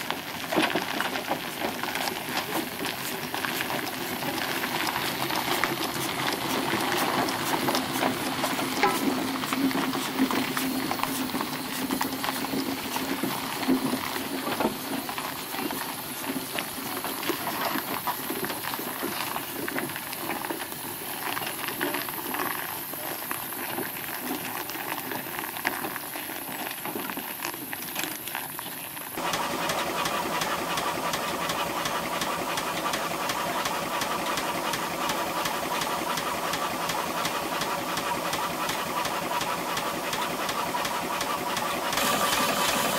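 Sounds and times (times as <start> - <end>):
steam engine clattering strokes: 0.0 - 18.5, 29.2 - 42.9
hiss of steam: 29.2 - 42.9.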